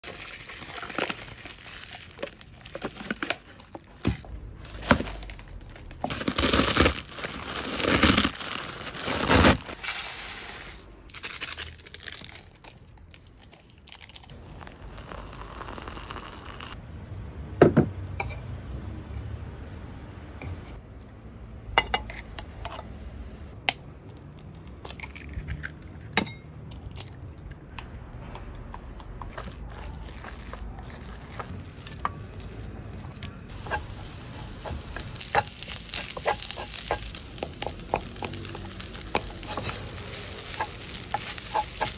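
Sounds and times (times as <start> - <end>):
plastic film tearing and crinkling: 0.0 - 16.8, 29.3 - 41.9.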